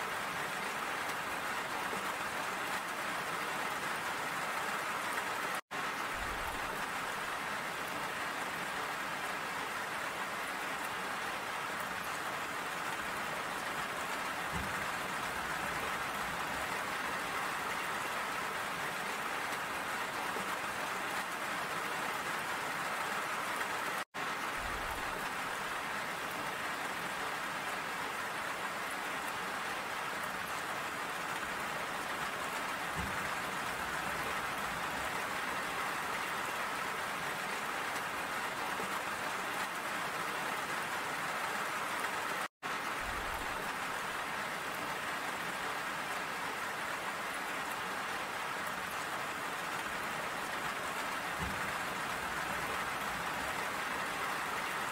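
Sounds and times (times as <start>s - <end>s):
steady rain falling: 0.0s - 54.9s.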